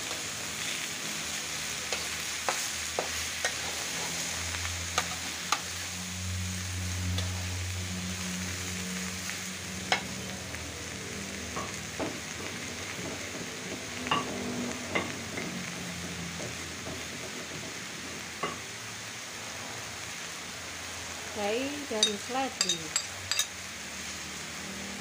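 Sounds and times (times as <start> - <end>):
vegetables sizzling in a wok: 0.0 - 25.0
metal spatula stirring: 22.0 - 23.5.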